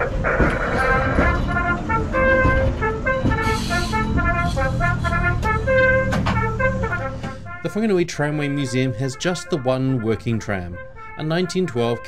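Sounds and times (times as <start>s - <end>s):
military brass band march: 0.0s - 7.9s.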